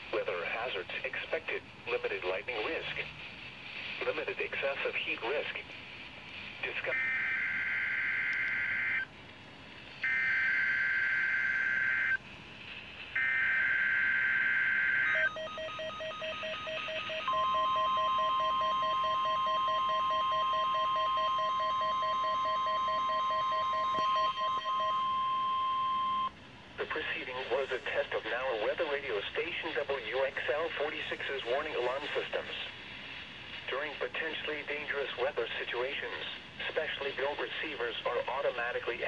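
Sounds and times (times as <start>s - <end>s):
long steady alert tone: 13.2s - 26.3s.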